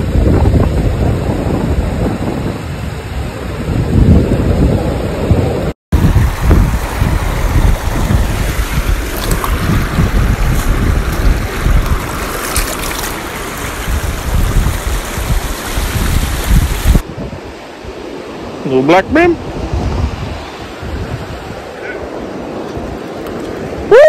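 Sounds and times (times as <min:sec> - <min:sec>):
wind buffeting microphone: 0:00.0 - 0:18.1, 0:19.1 - 0:23.9
river rapids rushing: 0:06.0 - 0:17.0
water splashing: 0:06.0 - 0:17.0.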